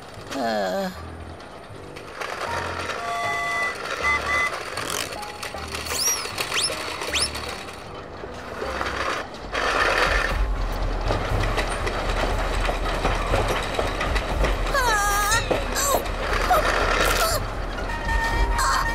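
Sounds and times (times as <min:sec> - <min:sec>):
roller coaster rattling on track: 0:00.0 - 0:18.9
short whistling swoops: 0:05.9 - 0:07.5.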